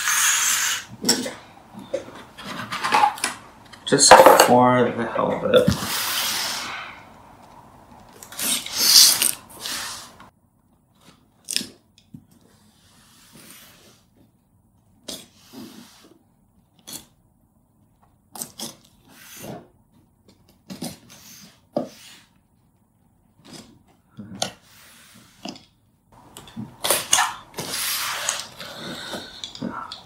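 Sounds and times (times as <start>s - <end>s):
tape and cardboard rustle: 8.0s - 17.2s
box cutter slicing packing tape: 8.3s - 9.9s.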